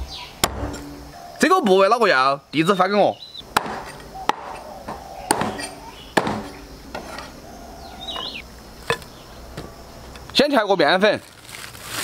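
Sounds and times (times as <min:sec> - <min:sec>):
cleaver chopping on wooden block: 0:03.6 - 0:07.1.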